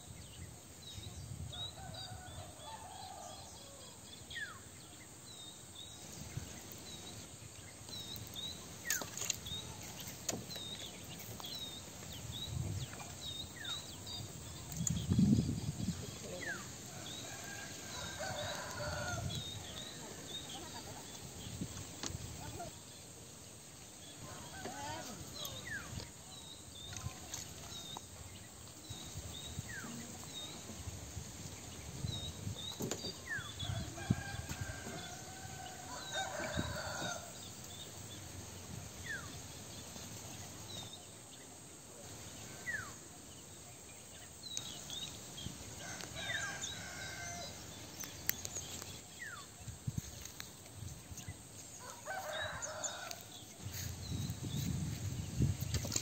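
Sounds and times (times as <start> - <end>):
small birds chirping: 4.8 - 41.6
rooster crowing: 17.2 - 19.4, 33.7 - 37.4, 45.8 - 47.6, 51.8 - 53.3.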